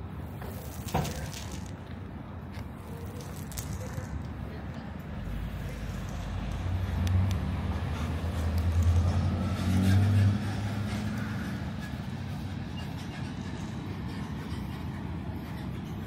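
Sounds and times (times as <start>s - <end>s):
vehicle engine passing by: 5.2s - 12.5s.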